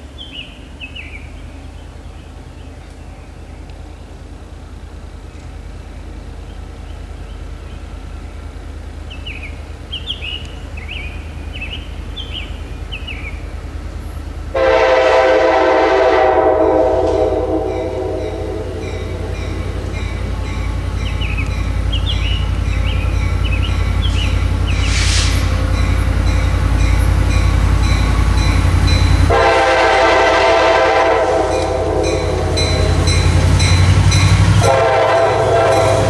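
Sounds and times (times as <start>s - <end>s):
diesel locomotive engine rumble: 0.0s - 36.0s
locomotive air horn blast: 14.5s - 20.5s, 24.8s - 25.6s, 29.3s - 33.7s, 34.3s - 36.0s.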